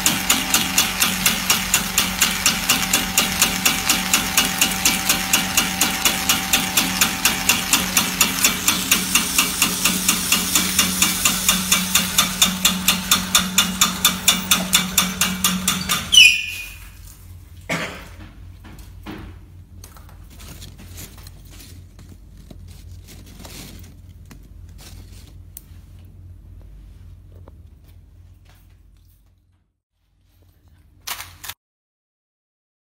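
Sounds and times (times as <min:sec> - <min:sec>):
snack extruder motor hum: 0:00.0 - 0:16.1
regular machine knocking: 0:00.0 - 0:16.2.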